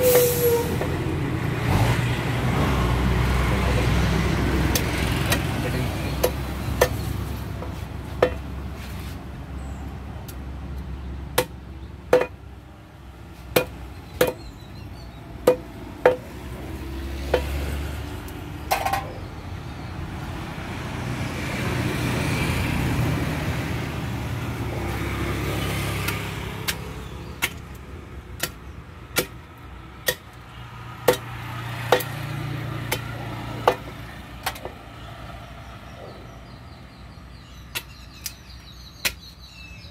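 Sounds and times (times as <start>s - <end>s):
vehicle rumbling past: 0.0s - 10.1s, 14.8s - 28.1s
knife chopping on wooden block: 13.6s - 14.4s.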